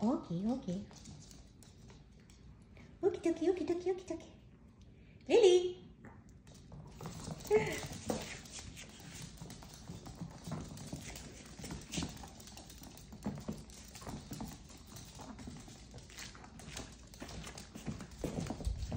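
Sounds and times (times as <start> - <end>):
dog claws tapping on wood floor: 6.4 - 18.9.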